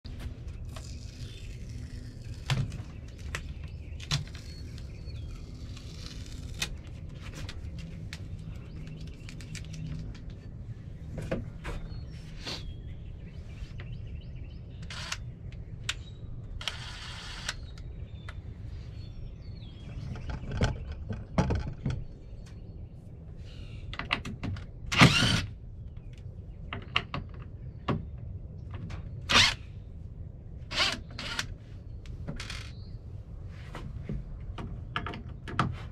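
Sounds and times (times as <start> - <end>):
hardware clicks and knocks: 34.1 - 35.9.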